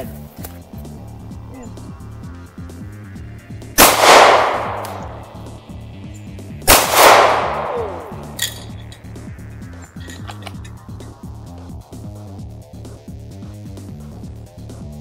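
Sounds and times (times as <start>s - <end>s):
gunshots with echo: 3.8s - 5.4s, 6.7s - 8.7s.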